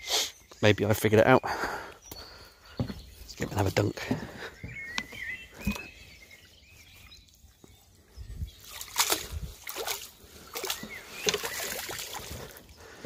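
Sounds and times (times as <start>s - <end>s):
net swishing and splashing in water: 8.6s - 12.6s.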